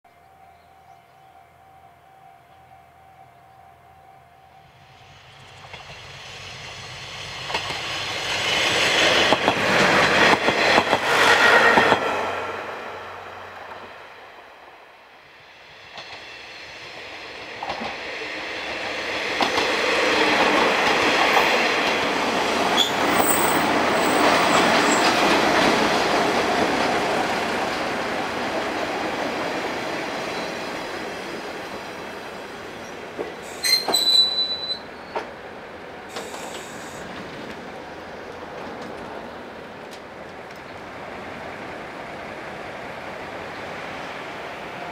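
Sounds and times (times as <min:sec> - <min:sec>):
diesel railcar running: 0:02.5 - 0:14.4, 0:15.7 - 0:44.9
high brake squeal: 0:22.8 - 0:24.2, 0:33.4 - 0:35.2.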